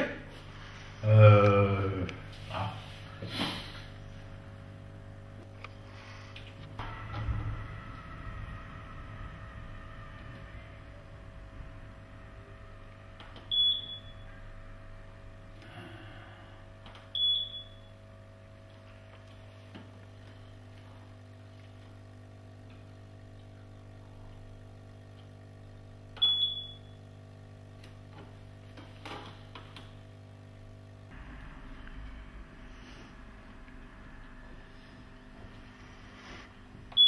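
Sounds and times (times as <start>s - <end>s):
low electrical hum: 0.0s - 37.0s
keypad beeps: 13.5s - 14.2s, 17.1s - 17.9s, 26.2s - 26.9s.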